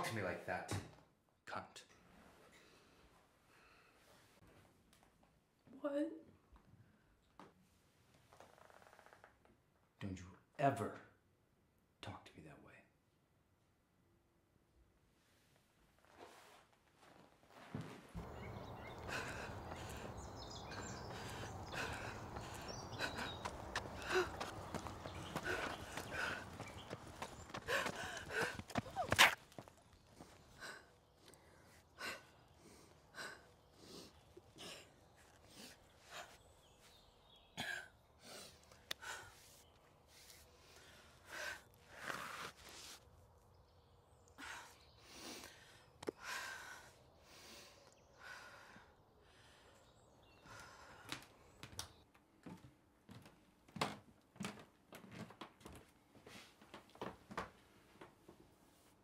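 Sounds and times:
woman breathing heavily: 18.2s - 42.6s, 44.3s - 51.7s.

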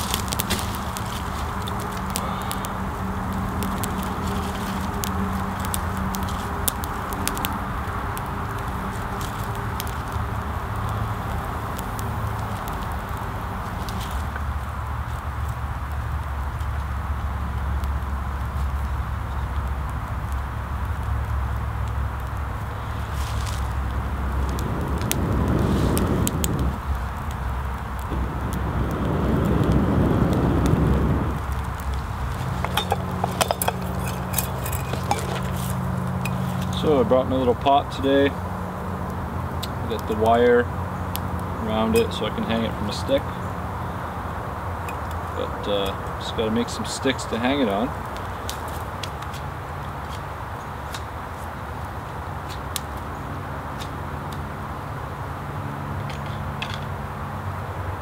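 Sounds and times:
person blowing on fire: 0.0s - 12.6s, 22.7s - 36.8s
campfire crackling and popping: 0.0s - 58.0s
distant highway traffic drone: 0.0s - 58.0s.

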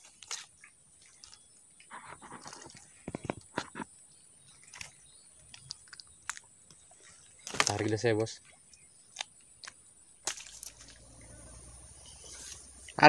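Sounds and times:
fishing gear clicks and rustles: 0.0s - 6.8s, 7.4s - 8.2s.

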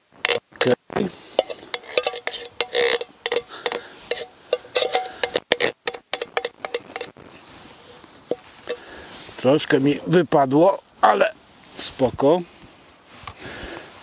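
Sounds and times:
metal spoon scraping tin can: 0.2s - 0.8s, 1.4s - 7.1s, 7.8s - 8.9s.

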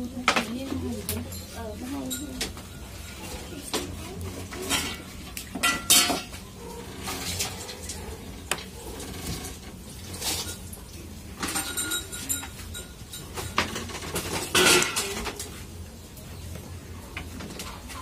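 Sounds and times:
light clinks and knocks: 0.4s - 4.0s, 11.4s - 15.4s.

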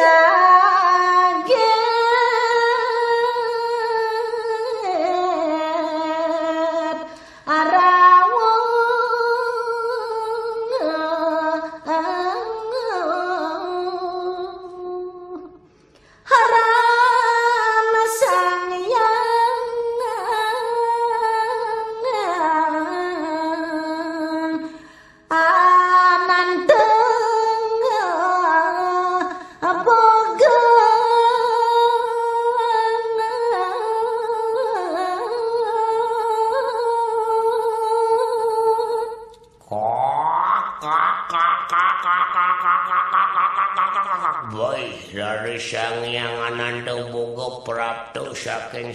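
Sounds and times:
person breathing: 7.1s - 7.5s, 15.6s - 16.3s, 24.7s - 25.3s.

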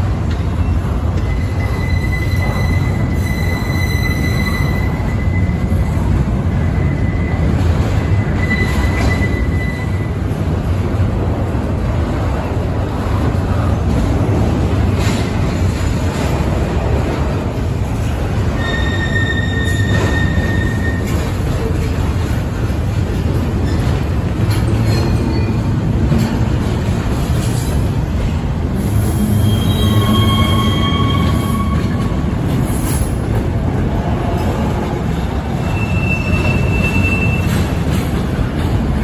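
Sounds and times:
freight train rumble on rails: 0.0s - 39.0s
steel wheels squealing: 0.6s - 10.2s, 18.5s - 21.8s, 28.8s - 33.2s, 35.5s - 38.1s.

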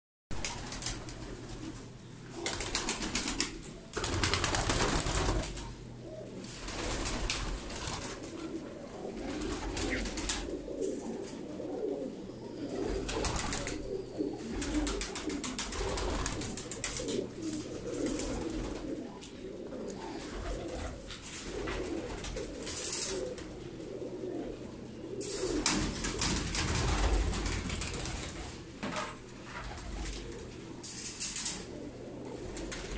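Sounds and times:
pigeons cooing: 0.4s - 32.9s
loud rustling bursts: 2.4s - 5.7s.

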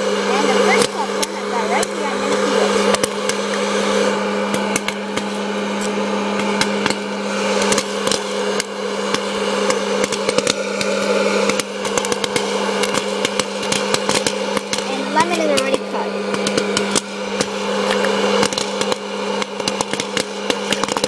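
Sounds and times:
popcorn machine fan humming: 0.0s - 21.0s
popcorn kernels popping: 2.8s - 3.7s, 4.4s - 15.0s, 16.3s - 21.0s.

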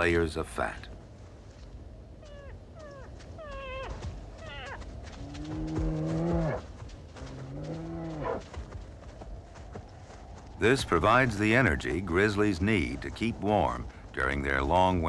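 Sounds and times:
bear cubs bawling: 2.2s - 8.4s
bear cubs whining: 2.2s - 8.4s.

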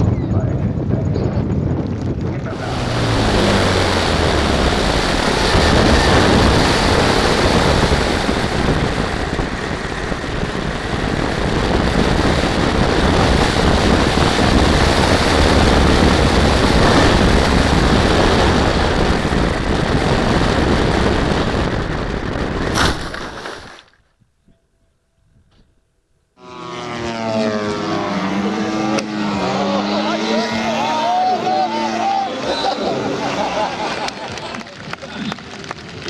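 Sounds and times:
plane hitting the ground: 0.0s - 23.3s, 26.4s - 36.0s
wind rushing: 0.0s - 23.7s
motor and propeller noise: 0.0s - 23.9s, 26.4s - 36.0s.

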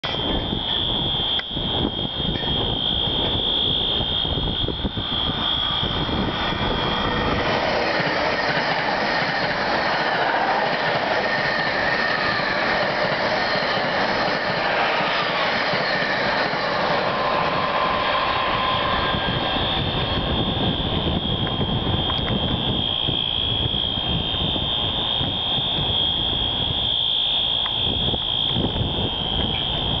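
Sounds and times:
fire alarm steady high tone: 0.0s - 30.0s
train passing at speed: 0.0s - 30.0s.

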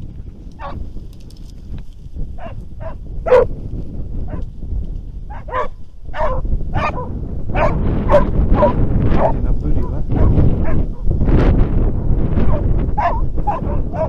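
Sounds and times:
wind rumbling on microphone: 0.0s - 14.0s
hounds barking and yelping: 0.6s - 0.8s, 2.4s - 3.5s, 5.3s - 9.4s, 10.1s - 11.1s, 12.4s - 14.0s.

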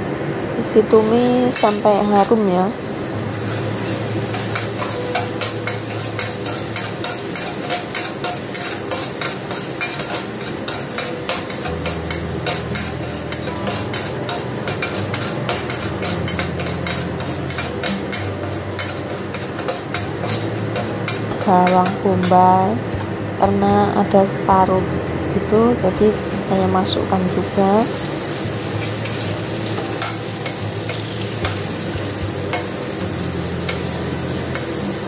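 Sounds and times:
garlic sizzling in oil: 0.9s - 24.4s, 25.4s - 35.0s
ladle scraping a wok: 3.4s - 22.3s.

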